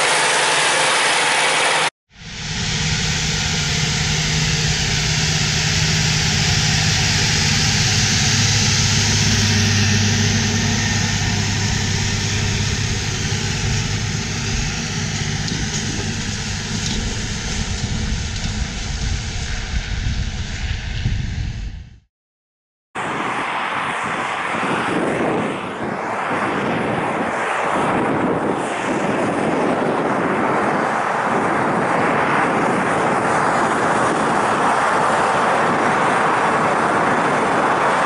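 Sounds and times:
tractor diesel engine drone: 0:00.0 - 0:22.0, 0:29.1 - 0:38.0.

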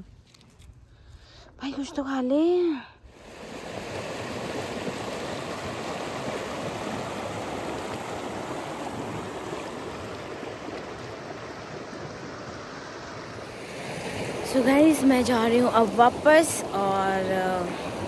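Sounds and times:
river flowing over stones: 0:03.2 - 0:18.0.

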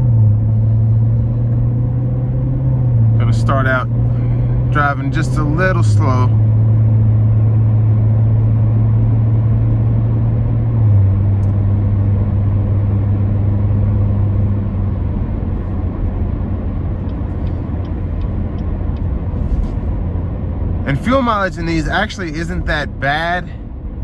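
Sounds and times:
car engine drone: 0:00.0 - 0:24.0
tyre and road noise: 0:00.0 - 0:24.0.

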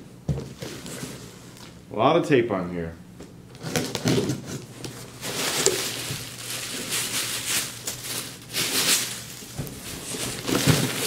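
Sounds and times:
tape tearing from cardboard: 0:03.6 - 0:04.6.

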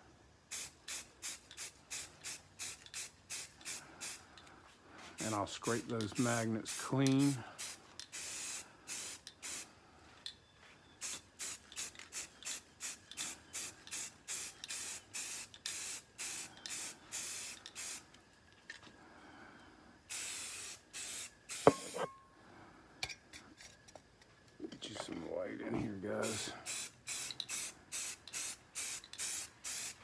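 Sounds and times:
spray paint can spraying: 0:00.5 - 0:04.2, 0:05.2 - 0:09.7, 0:11.0 - 0:18.1, 0:20.1 - 0:22.0, 0:26.2 - 0:30.0.

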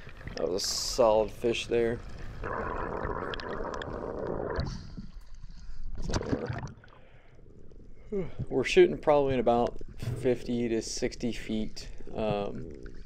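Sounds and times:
underwater hush: 0:02.4 - 0:05.0
water sloshing and rushing: 0:05.9 - 0:07.1.

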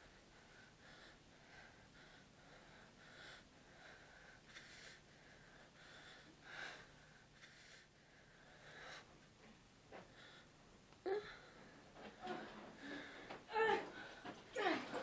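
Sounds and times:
man breathing raggedly: 0:00.0 - 0:09.2.

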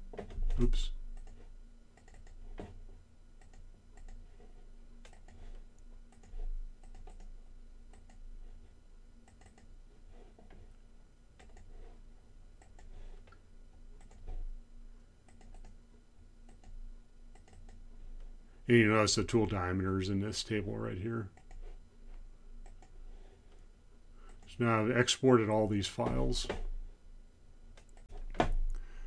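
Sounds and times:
low steady hum: 0:00.0 - 0:29.0
computer mouse clicks: 0:00.2 - 0:01.4, 0:02.0 - 0:02.4, 0:03.4 - 0:04.2, 0:05.0 - 0:05.5, 0:06.1 - 0:08.2, 0:09.3 - 0:09.7, 0:11.4 - 0:11.7, 0:12.6 - 0:13.4, 0:14.0 - 0:14.3, 0:15.3 - 0:15.8, 0:16.5 - 0:17.8, 0:21.4 - 0:21.7, 0:22.6 - 0:23.0, 0:27.8 - 0:28.8.

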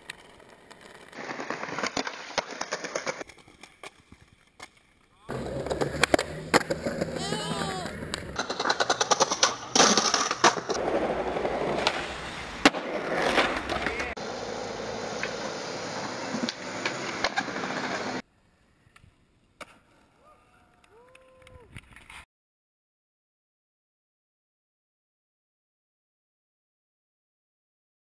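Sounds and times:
skateboard snapping and landing: 0:00.0 - 0:14.1, 0:19.0 - 0:20.1
skateboard wheels rolling on pavement: 0:00.0 - 0:20.2.

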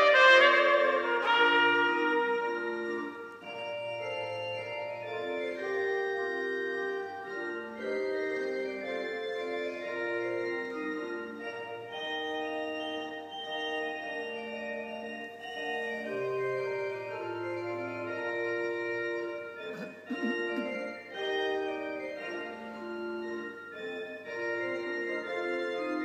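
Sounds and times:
trumpet phrase: 0:00.0 - 0:03.4
organ playing slow chords: 0:00.0 - 0:26.0.

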